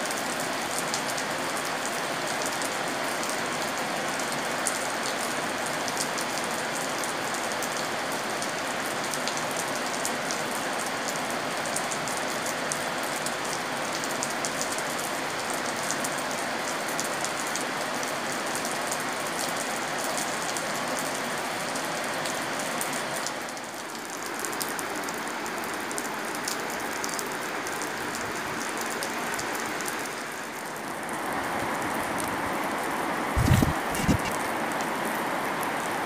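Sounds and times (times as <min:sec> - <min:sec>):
heavy rain falling: 0:00.0 - 0:36.0.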